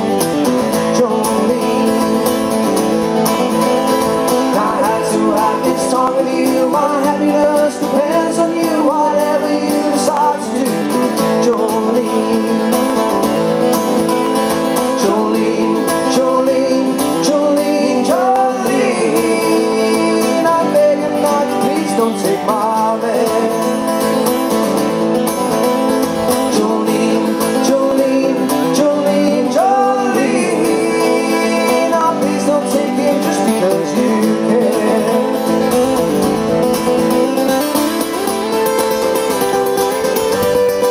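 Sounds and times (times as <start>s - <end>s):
acoustic guitars playing: 0.0s - 40.9s
man singing into a microphone: 0.4s - 2.8s, 4.3s - 13.4s, 14.7s - 24.2s, 26.2s - 36.4s.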